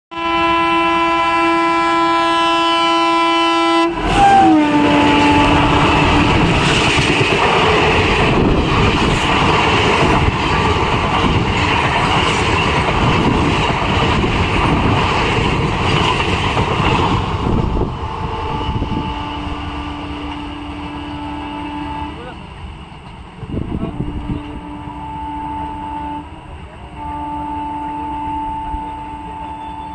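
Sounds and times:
locomotive horn: 0:00.1 - 0:07.0, 0:17.4 - 0:22.4, 0:23.7 - 0:29.9
train rushing past: 0:00.4 - 0:29.9.

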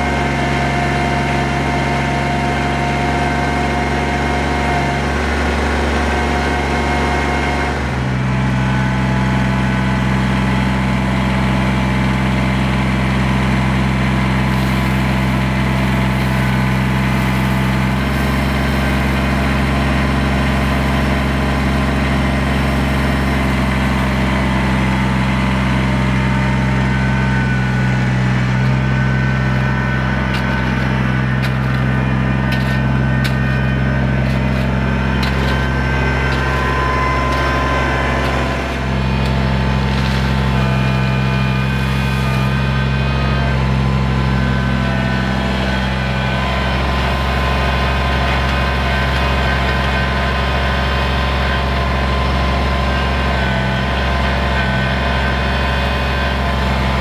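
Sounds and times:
tractor diesel engine running: 0:00.0 - 0:57.0
shovel scraping gravel: 0:28.6 - 0:43.3, 0:45.6 - 0:52.0.

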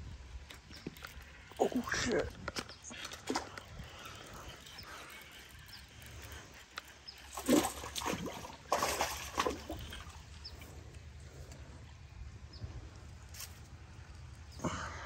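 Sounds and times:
fish thrashing and splashing: 0:02.8 - 0:04.4, 0:07.2 - 0:10.2.

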